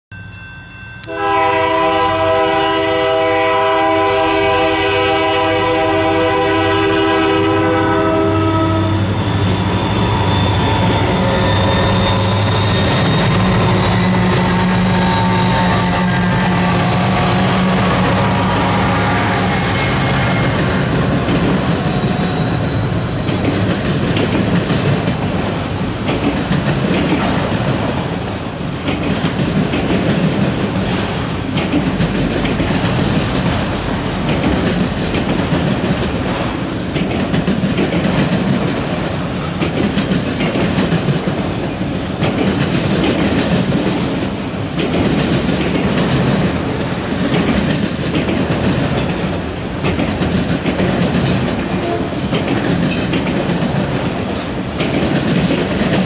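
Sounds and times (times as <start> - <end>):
locomotive horn blast: 1.0 - 9.1, 13.2 - 21.4, 51.8 - 52.2
freight cars rattling and clattering: 9.0 - 56.0.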